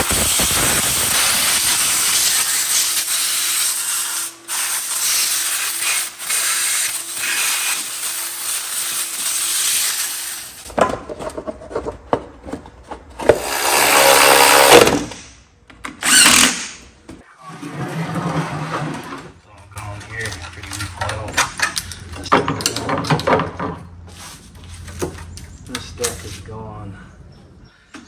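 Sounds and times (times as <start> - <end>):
shop vacuum sucking debris: 0.0 - 10.7.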